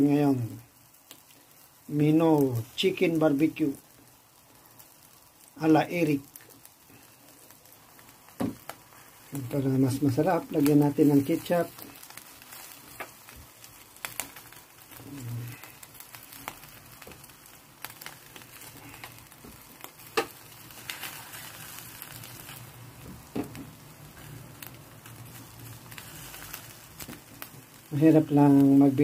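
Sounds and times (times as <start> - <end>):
chicken sizzling on a grill: 0.0 - 29.0.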